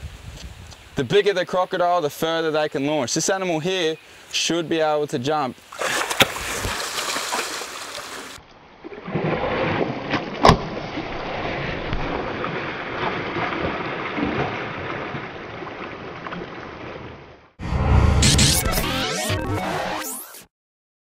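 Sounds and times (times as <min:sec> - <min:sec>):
water splashing and churning: 0:05.6 - 0:17.5.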